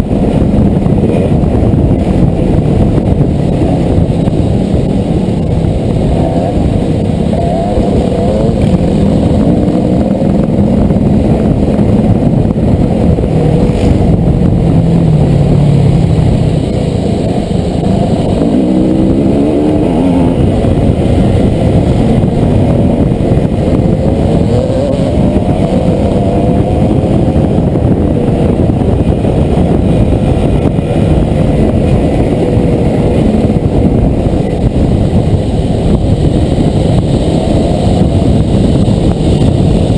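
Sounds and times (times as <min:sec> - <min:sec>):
dirt bike engine revving: 0:03.4 - 0:33.6.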